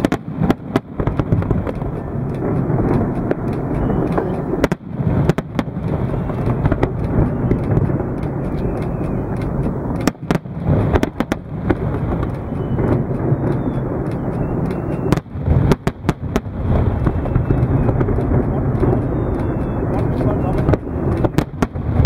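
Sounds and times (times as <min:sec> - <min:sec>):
fireworks rumbling: 0:00.0 - 0:22.0
fireworks sharp cracks: 0:00.0 - 0:22.0.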